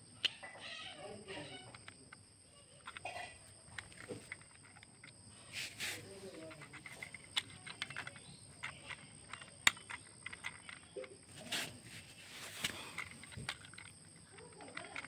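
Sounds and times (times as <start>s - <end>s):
plastic toy train clicks and taps: 1.5s - 5.2s, 6.2s - 11.7s, 12.3s - 15.0s
rustle of handling: 3.6s - 15.0s.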